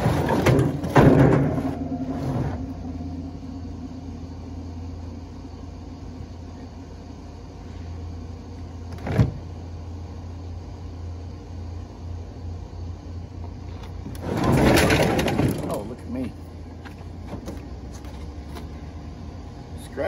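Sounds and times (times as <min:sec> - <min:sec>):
refrigerator scraping across truck bed: 0:00.0 - 0:03.0, 0:14.1 - 0:16.0
vehicle engine hum: 0:00.0 - 0:14.3, 0:15.6 - 0:20.0
thump: 0:00.1 - 0:02.8.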